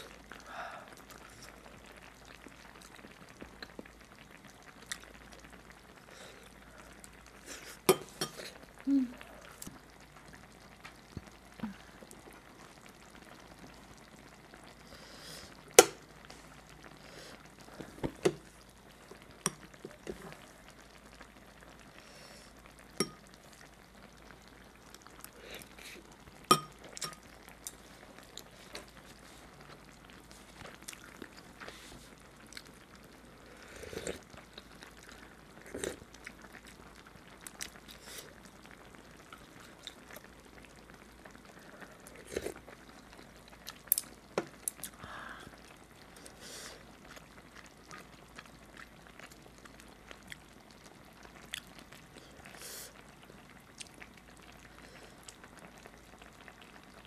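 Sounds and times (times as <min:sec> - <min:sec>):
chewing: 0:30.5 - 0:31.8, 0:32.5 - 0:32.8, 0:50.1 - 0:50.5, 0:51.4 - 0:51.8.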